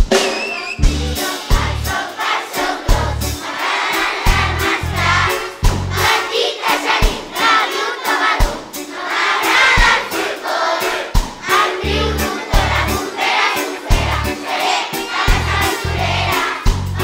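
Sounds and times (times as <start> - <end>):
children's choir singing: 0.1 - 17.0
low bass notes: 0.8 - 1.9, 2.9 - 3.4, 4.3 - 6.1, 11.8 - 13.0, 13.9 - 14.3, 15.3 - 17.0
low beat: 4.3 - 6.2, 13.9 - 14.4.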